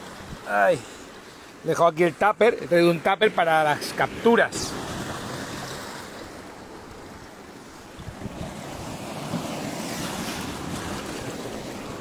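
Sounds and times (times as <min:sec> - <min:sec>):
sea surf washing against boulders: 0:00.0 - 0:12.0
wind buffeting microphone: 0:07.9 - 0:12.0.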